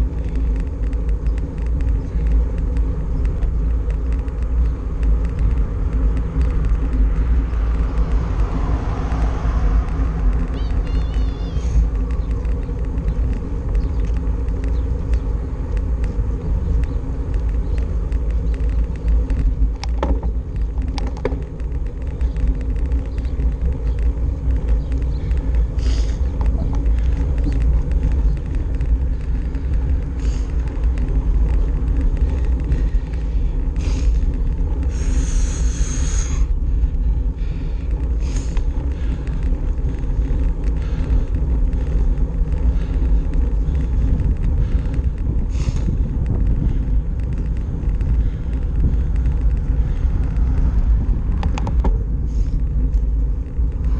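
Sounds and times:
bicycle road noise: 0.0 - 53.9
wind buffeting microphone: 0.0 - 53.9.

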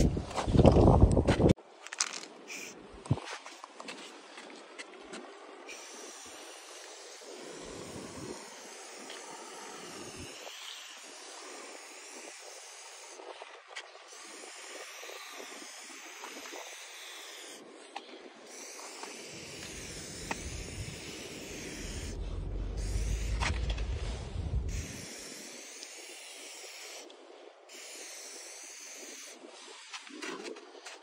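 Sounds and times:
spray paint can hissing: 2.5 - 2.8, 5.7 - 13.2, 14.1 - 17.6, 18.5 - 27.1, 27.7 - 29.4
low rumble: 21.8 - 24.9.

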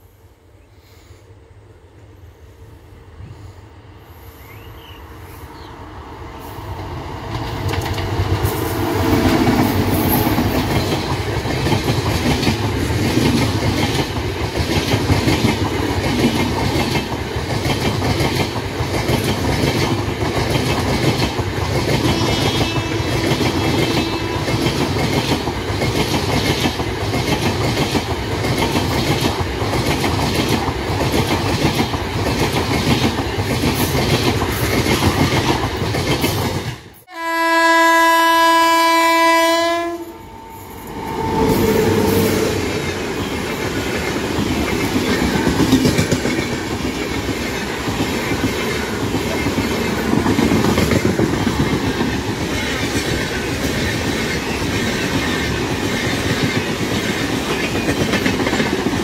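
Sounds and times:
train wheels on rail: 1.9 - 37.1, 39.0 - 59.0
locomotive horn blast: 22.1 - 24.6, 37.1 - 42.5.

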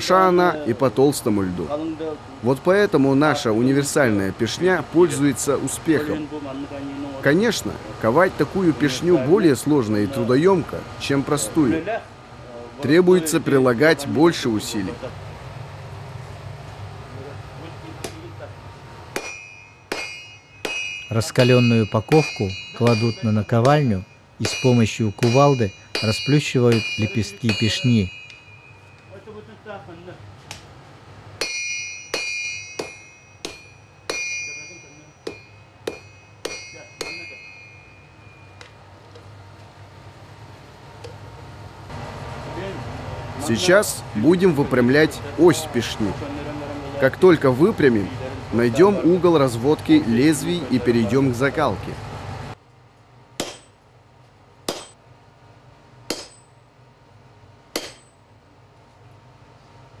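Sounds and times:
sledgehammer striking steel on anvil: 19.1 - 29.3, 31.4 - 38.7, 53.4 - 53.8, 54.7 - 55.0, 56.1 - 56.6, 57.7 - 58.2
anvil ringing: 19.1 - 29.6, 31.4 - 38.8, 53.4 - 53.8, 54.7 - 55.0, 56.1 - 56.6, 57.8 - 58.2.

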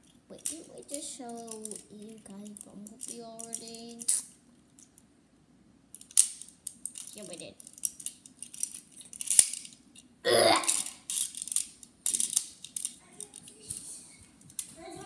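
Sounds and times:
plastic toy parts clicking: 0.4 - 5.0, 5.9 - 10.1, 10.7 - 13.7.

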